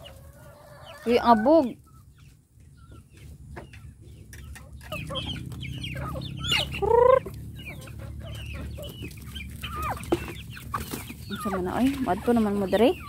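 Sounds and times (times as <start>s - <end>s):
chickens clucking: 0.0s - 13.0s
chicken squawk: 4.5s - 13.0s.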